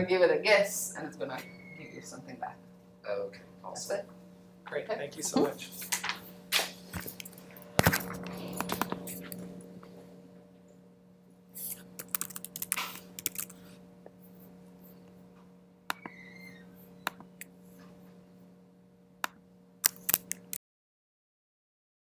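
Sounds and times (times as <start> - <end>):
steady electrical hum: 0.0 - 20.6.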